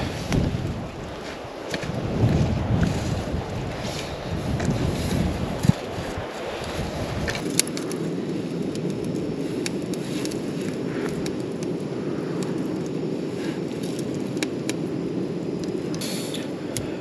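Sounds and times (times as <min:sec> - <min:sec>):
campfire crackling and popping: 0:00.0 - 0:17.0
wind noise: 0:00.0 - 0:17.0.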